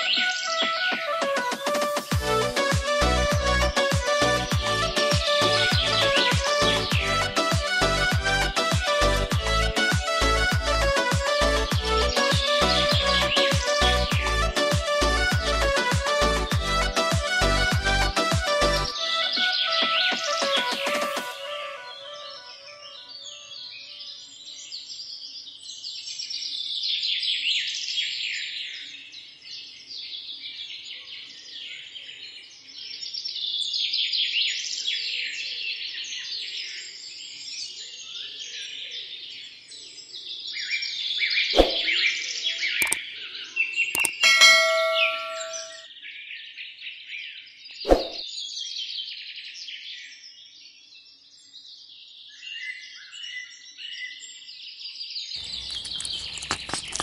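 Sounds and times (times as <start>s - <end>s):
birds chirping and trilling: 0.0s - 1.0s, 12.0s - 14.4s, 40.5s - 45.8s, 55.2s - 57.0s
sharp clicks: 44.0s - 44.2s, 55.4s - 57.0s
short ringing tone: 44.0s - 45.8s.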